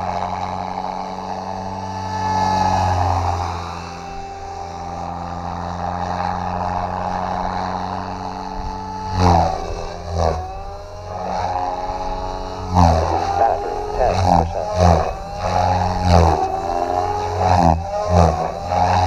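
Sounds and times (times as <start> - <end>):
helicopter rotors droning: 0.0 - 19.0
motor whine: 0.0 - 19.0.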